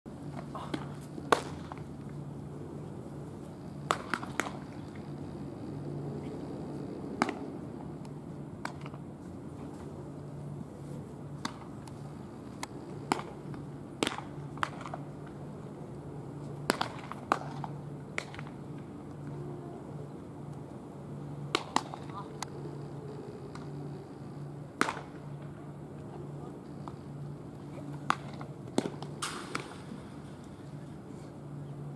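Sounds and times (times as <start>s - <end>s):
steady low hum: 0.1s - 31.9s
baseballs smacking into gloves: 0.3s - 1.9s, 3.8s - 5.0s, 7.2s - 9.0s, 11.4s - 15.4s, 16.6s - 18.6s, 21.5s - 22.5s, 24.8s - 25.2s, 28.0s - 30.5s.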